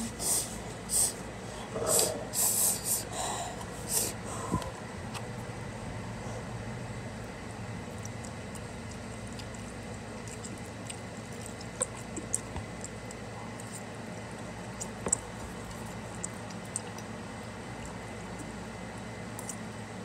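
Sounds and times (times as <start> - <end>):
steady low hum: 0.0 - 20.0
slurping and chewing noodles: 7.2 - 19.6.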